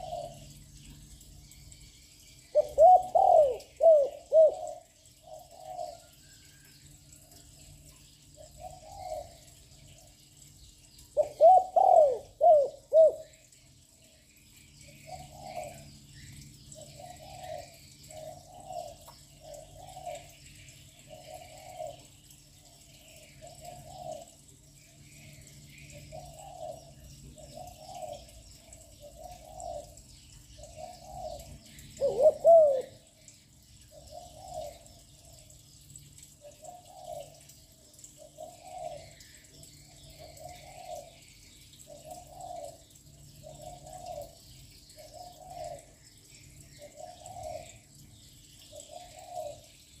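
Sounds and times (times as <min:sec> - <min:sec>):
dove cooing: 0:00.0 - 0:00.6, 0:02.5 - 0:06.2, 0:08.4 - 0:09.5, 0:11.2 - 0:13.3, 0:15.1 - 0:15.8, 0:21.1 - 0:22.1, 0:23.5 - 0:24.4, 0:26.1 - 0:28.3, 0:29.0 - 0:30.0, 0:30.6 - 0:33.1, 0:36.4 - 0:37.5, 0:40.4 - 0:41.2, 0:41.8 - 0:42.8, 0:43.4 - 0:44.4, 0:45.0 - 0:45.9, 0:48.7 - 0:49.7.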